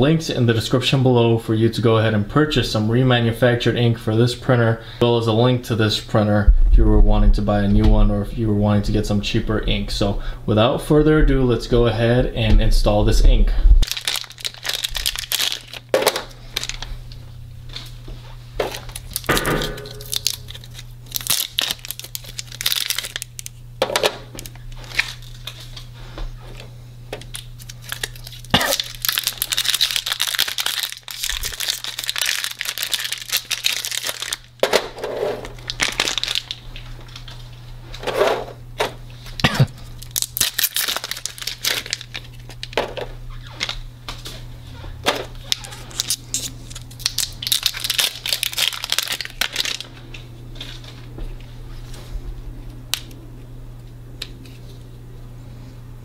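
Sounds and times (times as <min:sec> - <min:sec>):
steady low hum: 0:00.0 - 0:56.0
plastic bags crinkling and tearing: 0:13.8 - 0:17.2, 0:18.7 - 0:23.6, 0:24.4 - 0:25.9, 0:27.2 - 0:37.4, 0:39.3 - 0:43.8, 0:45.2 - 0:50.9.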